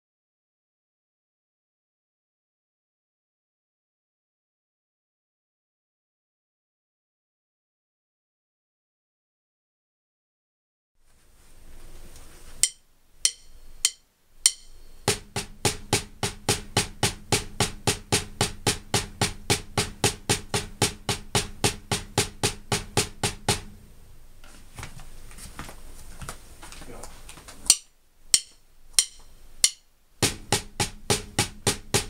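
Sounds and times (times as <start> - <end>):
count-in clicks: 12.6 - 15.2
drumsticks tapping on practice pad: 12.6 - 23.8, 27.7 - 32.0.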